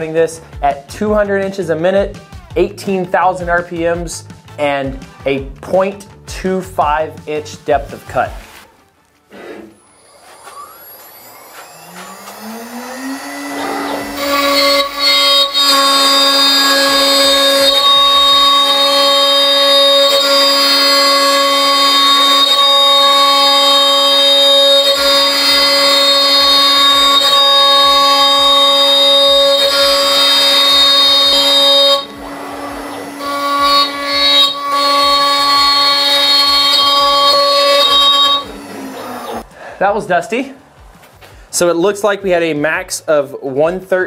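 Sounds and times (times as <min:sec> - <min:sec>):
router bit screaming through wood: 0:09.3 - 0:39.5
router spindle whining: 0:09.3 - 0:39.5.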